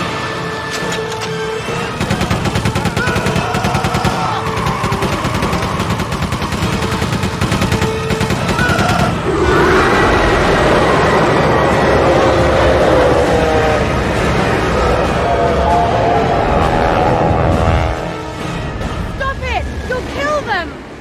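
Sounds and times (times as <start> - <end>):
film music: 0.0 - 21.0
loud rushing sandstorm noise: 1.7 - 21.0
rapid machine-gun fire: 1.8 - 9.2.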